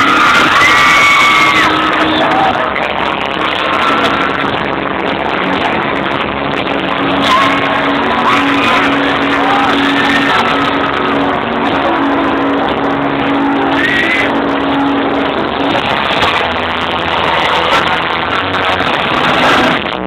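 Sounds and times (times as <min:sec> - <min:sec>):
high gliding screams and whoops: 0:00.0 - 0:04.4, 0:07.0 - 0:11.1, 0:13.3 - 0:14.9
crowd noise: 0:00.0 - 0:20.0.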